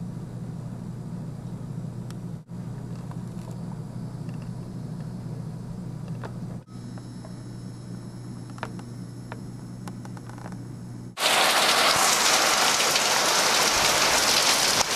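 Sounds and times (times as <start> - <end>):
low steady hum: 0.0 - 11.2
heavy rain pouring: 11.2 - 14.9.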